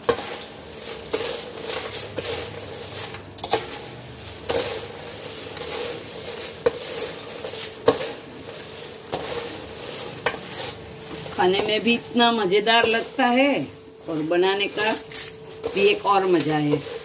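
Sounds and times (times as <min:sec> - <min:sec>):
ladle scraping steel plate: 0:00.0 - 0:13.5
crisp flakes rustling: 0:00.0 - 0:17.0.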